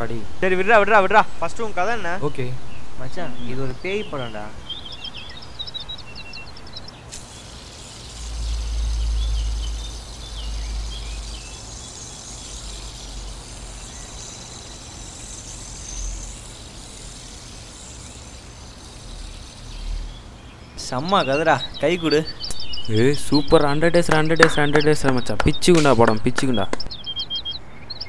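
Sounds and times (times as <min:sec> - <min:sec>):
birds chirping: 0:00.0 - 0:28.0
steady hiss: 0:06.5 - 0:26.8.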